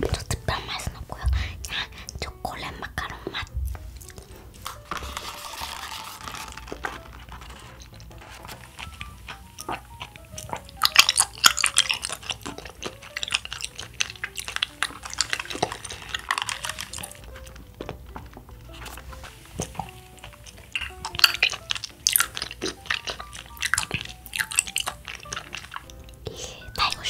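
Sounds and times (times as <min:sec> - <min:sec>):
quiet background music: 0:00.0 - 0:27.0
straw piercing plastic lid: 0:04.1 - 0:13.7.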